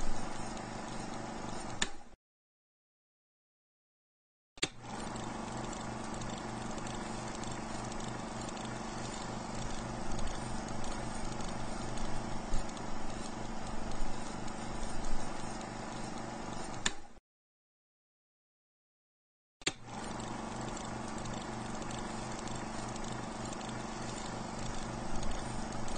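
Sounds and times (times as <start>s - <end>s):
film projector whirring: 0.0s - 2.0s, 4.6s - 17.2s, 19.7s - 25.9s.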